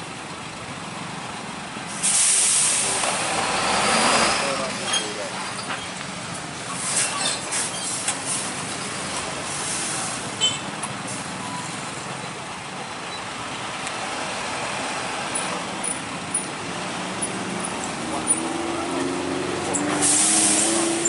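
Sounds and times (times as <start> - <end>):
road traffic noise: 0.0 - 21.0
truck diesel engine running: 8.2 - 20.9.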